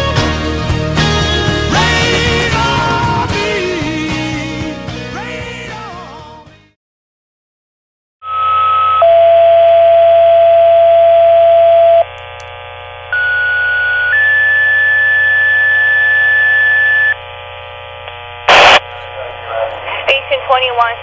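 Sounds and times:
radio hiss and hum: 0:12.0 - 0:13.2, 0:14.0 - 0:21.0.

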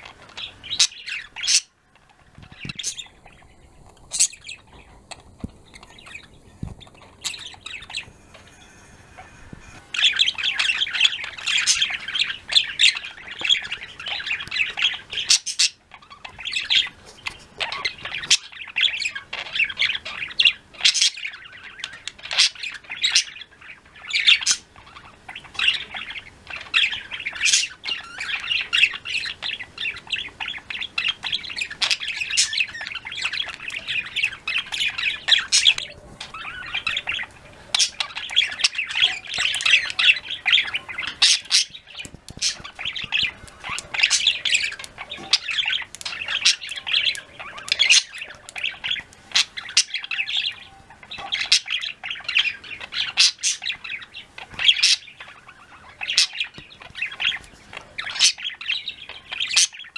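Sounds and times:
budgerigars chirping and warbling: 0:00.0 - 0:59.9.

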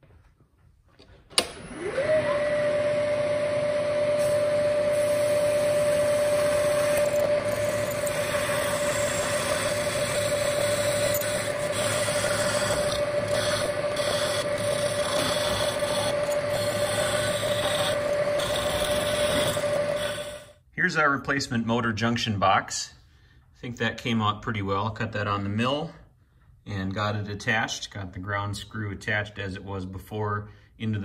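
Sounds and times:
end mill cutting plastic: 0:01.4 - 0:20.6
milling machine spindle whine: 0:01.6 - 0:20.6.

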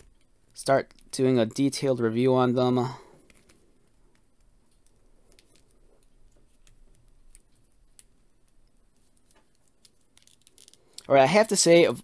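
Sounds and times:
plastic figure clicking in hands: 0:00.0 - 0:01.1, 0:03.2 - 0:11.1.

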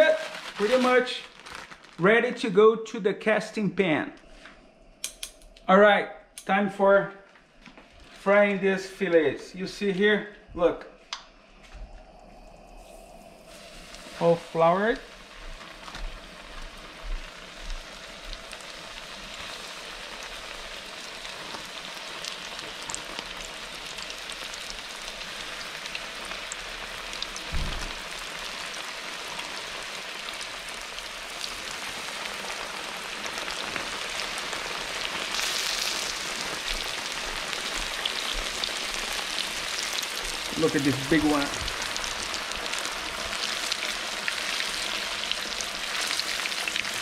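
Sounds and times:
fish frying in hot oil: 0:12.8 - 0:47.0
low thump: 0:27.5 - 0:27.9.

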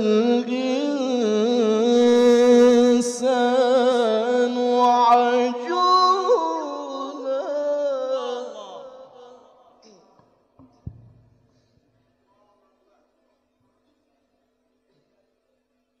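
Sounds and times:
man reciting melismatic chant: 0:00.0 - 0:10.1.

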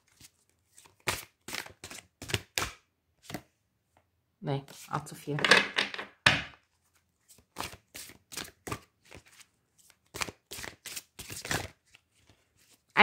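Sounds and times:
cards being shuffled: 0:00.1 - 0:03.5, 0:06.8 - 0:12.9.

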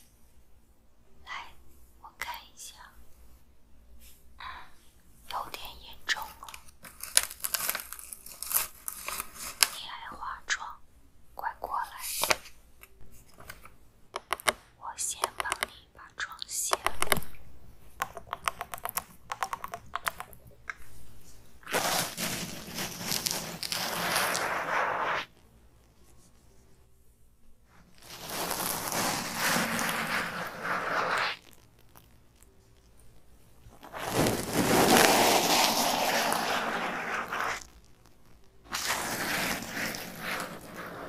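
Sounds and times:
cotton pad rubbing on microphone: 0:21.6 - 0:25.4, 0:27.9 - 0:31.6, 0:33.8 - 0:37.8, 0:38.7 - 0:41.0.

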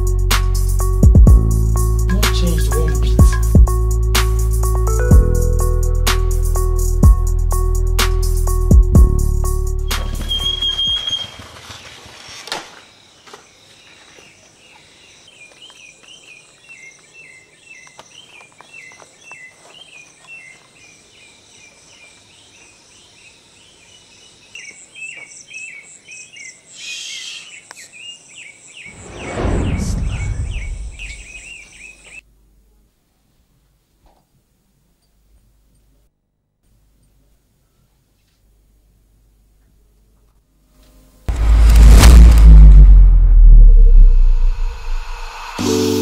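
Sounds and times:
insects chirping: 0:09.8 - 0:32.2
loud downward sweeping sound: 0:28.9 - 0:31.4, 0:41.3 - 0:46.0.

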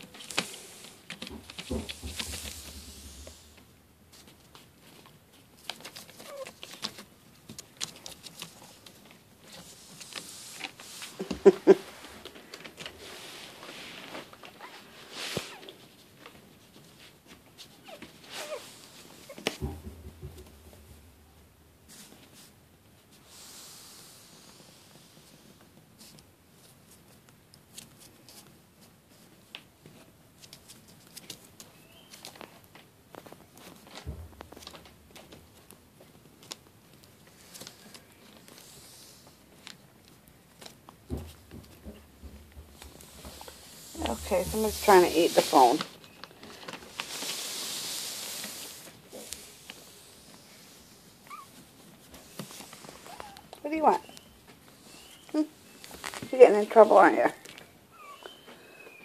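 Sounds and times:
puppy paws pattering on newspaper: 0:00.0 - 0:19.8, 0:24.4 - 0:59.0
paper rustling: 0:04.1 - 0:19.7, 0:30.0 - 0:56.3
puppy paws clicking on magazine: 0:04.6 - 0:10.3
puppy squeak: 0:51.3 - 0:51.5.

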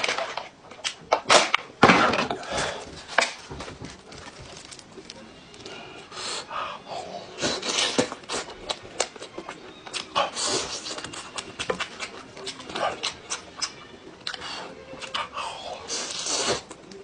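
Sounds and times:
person chewing food: 0:07.4 - 0:17.0.

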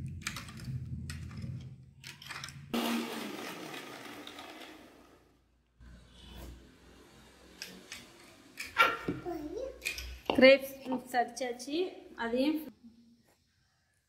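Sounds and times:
electric mixer grinder whirring: 0:02.8 - 0:05.3.

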